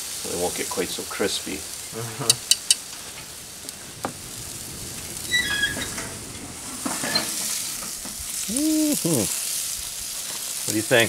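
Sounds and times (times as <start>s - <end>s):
sausages sizzling on a grill: 0.0s - 11.0s.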